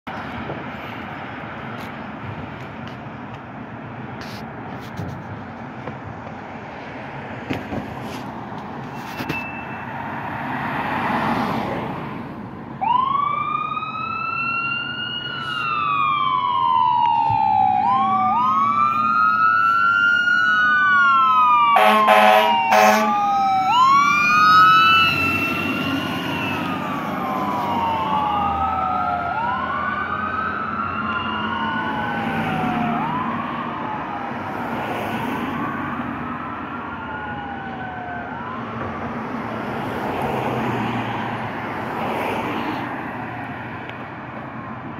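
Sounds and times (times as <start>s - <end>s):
passing road traffic: 0.0s - 44.9s
fire engine siren wailing: 12.5s - 44.9s
horn blasts: 21.8s - 23.2s.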